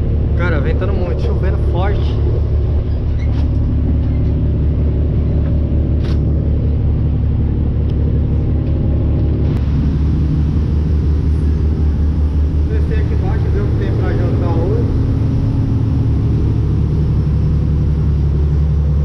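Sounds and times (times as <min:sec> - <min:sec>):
boat engine droning: 0:00.0 - 0:19.0
heavy rain: 0:09.6 - 0:19.0.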